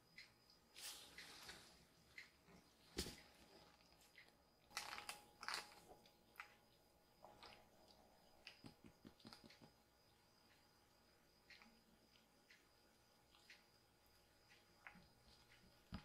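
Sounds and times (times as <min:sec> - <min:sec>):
kitten licking and gnawing: 0:03.6 - 0:10.2.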